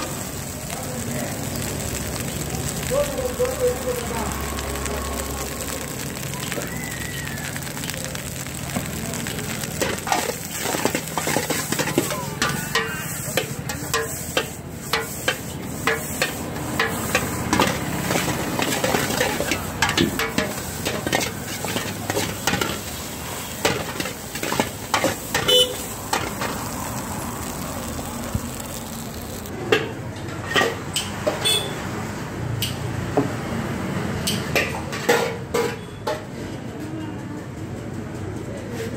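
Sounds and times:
frying hiss: 0.0s - 29.9s
utensils clanking against pan: 9.6s - 26.7s, 29.5s - 31.7s, 34.2s - 36.4s.

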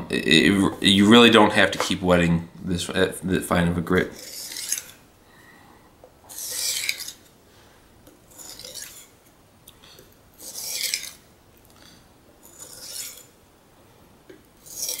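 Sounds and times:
knife sharpening on whetstone: 6.3s - 7.2s, 8.3s - 9.1s, 10.4s - 11.2s, 12.4s - 13.3s, 14.6s - 15.0s.

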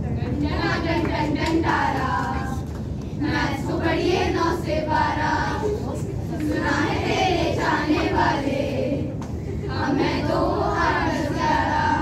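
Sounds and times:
children singing in unison: 9.8s - 12.0s.

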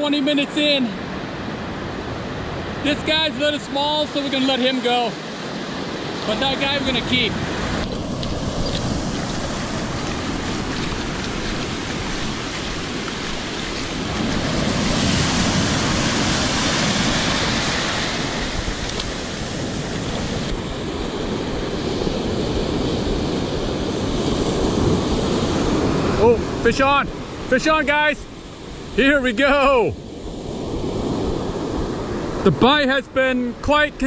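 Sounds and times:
ocean surf washing on sand: 0.0s - 34.0s.

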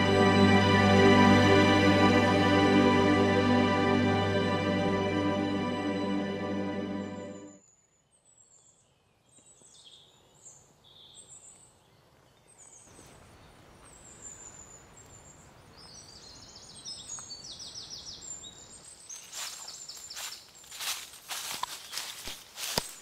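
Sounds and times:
steady outdoor hiss: 0.0s - 7.1s.

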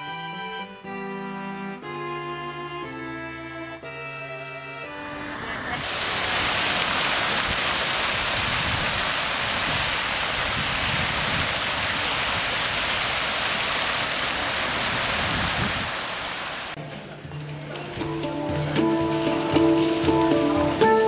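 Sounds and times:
fountain water splashing: 5.8s - 16.8s, 18.7s - 21.0s.

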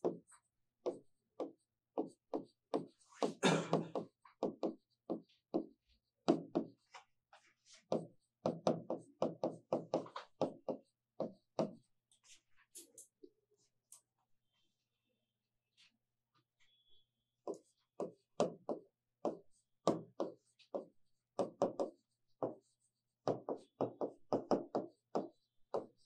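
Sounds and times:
chalk tapping on blackboard: 0.0s - 11.9s, 17.5s - 26.0s.

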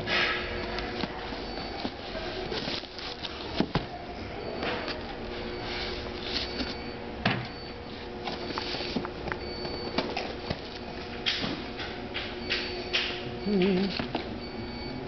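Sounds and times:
cardboard scraping and rustling: 0.9s - 3.9s
cartons knocking and thumping: 0.9s - 4.0s, 8.2s - 13.1s.

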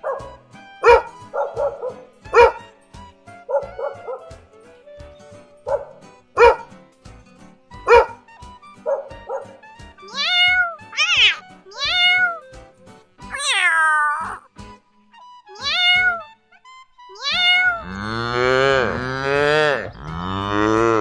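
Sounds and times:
dog yapping: 0.0s - 2.6s, 3.5s - 4.3s, 5.7s - 6.7s, 7.9s - 8.2s, 8.9s - 12.4s, 17.2s - 17.8s
dog barking: 0.0s - 2.7s, 3.5s - 4.3s, 5.7s - 6.7s, 7.9s - 8.2s, 8.8s - 9.6s
background music: 0.0s - 21.0s
cat meowing: 10.0s - 12.5s, 13.2s - 14.5s, 15.5s - 16.3s, 17.1s - 17.9s.

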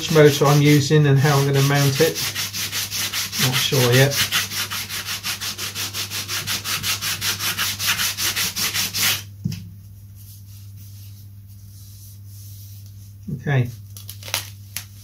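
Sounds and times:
hand sanding wood: 0.0s - 9.3s
low steady hum: 0.0s - 15.0s.

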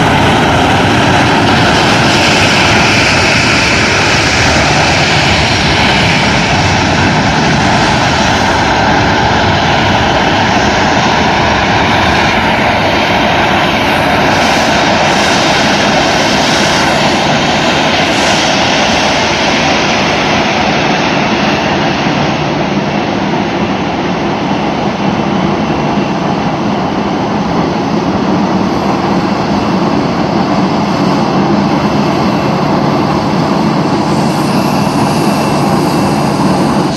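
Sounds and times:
jet engines rumbling and whining: 0.0s - 36.9s.

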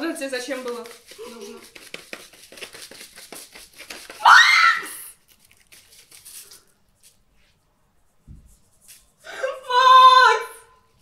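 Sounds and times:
powder shaken through wire sieve: 0.0s - 7.2s
girl shrieking with laughter: 4.2s - 5.1s.

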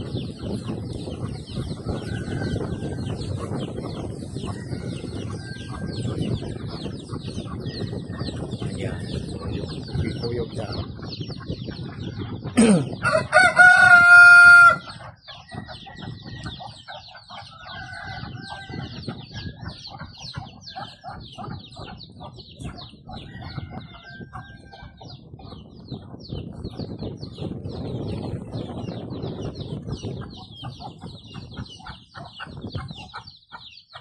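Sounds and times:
chickens clucking: 0.0s - 34.0s
chicks peeping: 0.0s - 34.0s
rooster crowing: 13.0s - 15.0s.

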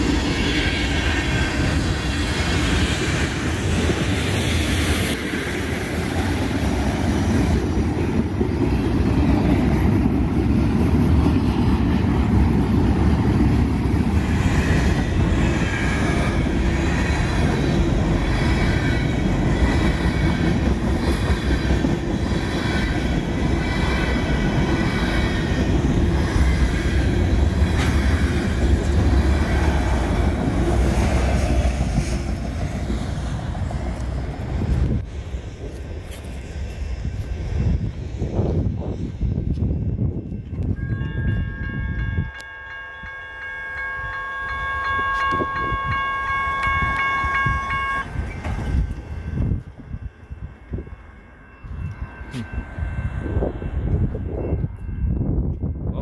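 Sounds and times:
freight train wheels clattering on rails: 0.0s - 43.5s, 45.1s - 55.8s
high ringing tones: 39.7s - 56.0s.

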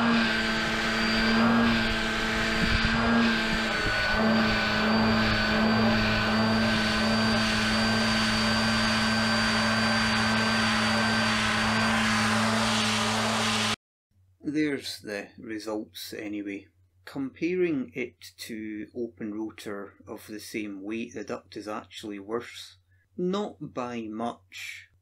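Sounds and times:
ducted propeller whine: 0.0s - 13.8s.

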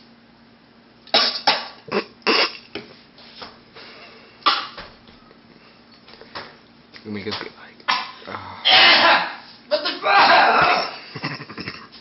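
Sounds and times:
person coughing: 1.9s - 2.7s, 7.9s - 9.4s.

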